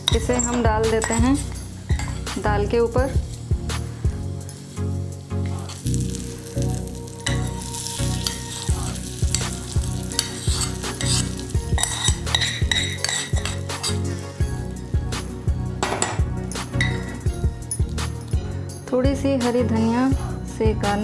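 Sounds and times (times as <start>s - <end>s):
metal spoon scraping pan: 0.0s - 2.4s, 10.1s - 14.4s
hot oil sizzling: 0.0s - 18.6s.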